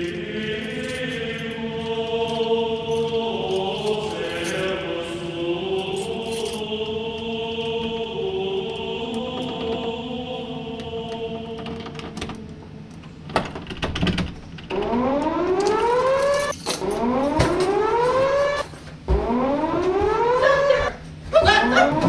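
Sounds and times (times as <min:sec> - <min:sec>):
whooping alarm siren: 0:14.7 - 0:22.0.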